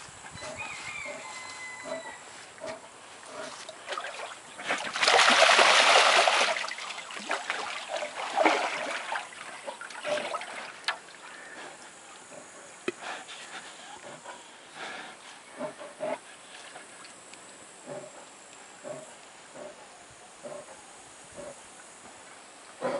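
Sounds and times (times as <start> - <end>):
water splashing in a tub: 3.5 - 11.3.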